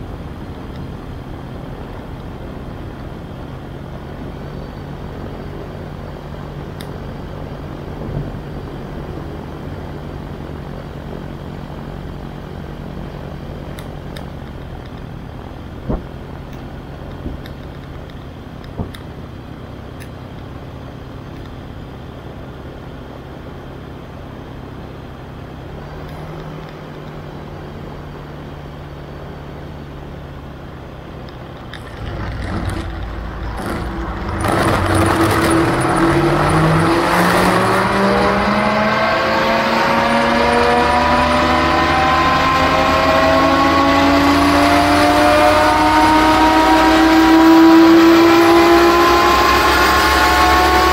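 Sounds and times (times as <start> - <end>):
wind and propeller noise: 0.0 - 43.9
gyroplane engine: 0.0 - 50.9.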